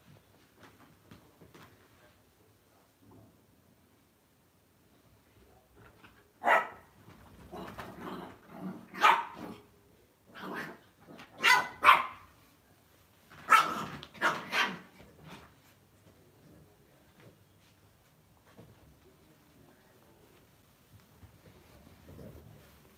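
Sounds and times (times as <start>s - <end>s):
dogs barking sharply: 6.4s - 6.9s, 8.9s - 9.6s, 11.3s - 12.3s, 13.4s - 15.0s.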